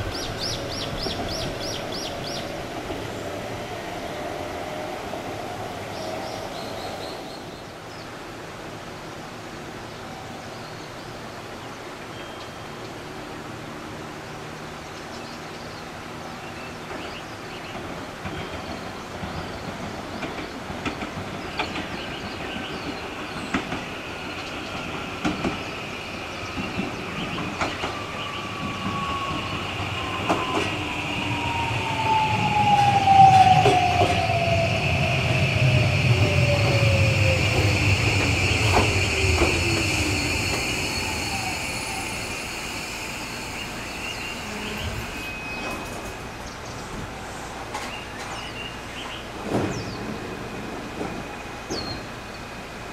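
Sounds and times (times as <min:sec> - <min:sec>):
high brake squeal: 0:27.7 - 0:46.9
traction motor whine: 0:28.0 - 0:46.2.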